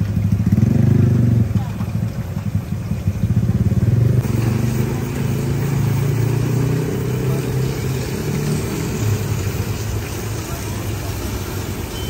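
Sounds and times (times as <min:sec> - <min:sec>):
engine idling: 0:00.0 - 0:12.0
fish frying in hot oil: 0:00.0 - 0:12.0.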